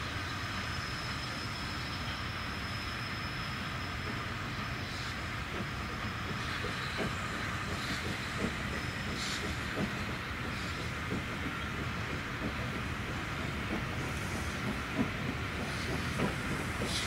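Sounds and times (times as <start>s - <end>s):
faint high wheel squeal: 0.0s - 11.0s
train rumbling: 0.0s - 17.0s.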